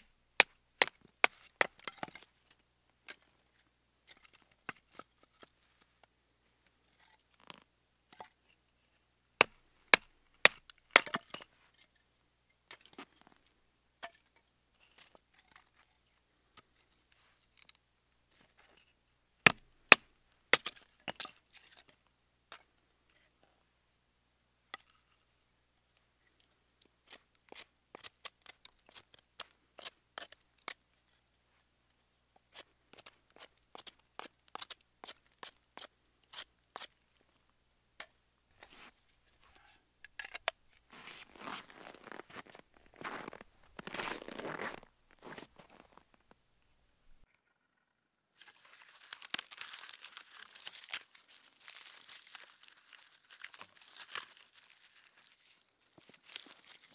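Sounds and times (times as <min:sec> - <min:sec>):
knife splitting firewood: 0:09.4 - 0:11.4, 0:19.4 - 0:21.9, 0:27.0 - 0:30.8, 0:32.5 - 0:37.0, 0:48.4 - 0:56.9.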